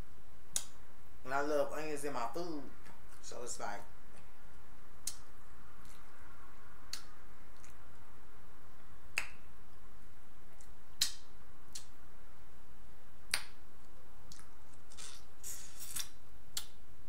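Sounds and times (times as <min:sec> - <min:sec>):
wet mouth clicks: 0:00.5 - 0:00.8, 0:05.0 - 0:06.2, 0:06.9 - 0:07.8, 0:10.6 - 0:12.0, 0:14.3 - 0:16.8
smacking and chewing: 0:05.0 - 0:06.2, 0:06.9 - 0:08.0, 0:13.3 - 0:16.8.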